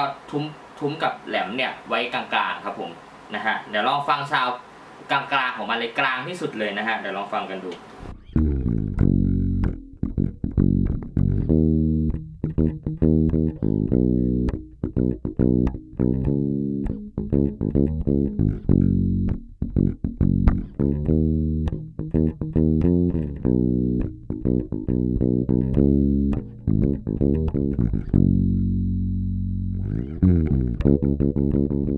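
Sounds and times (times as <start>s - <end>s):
bass guitar plucked fingerstyle: 8.0s - 31.9s.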